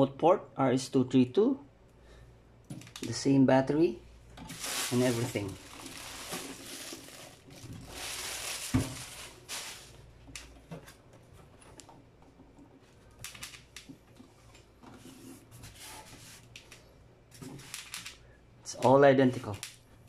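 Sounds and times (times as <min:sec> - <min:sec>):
plastic bag rustling: 0:04.5 - 0:10.4.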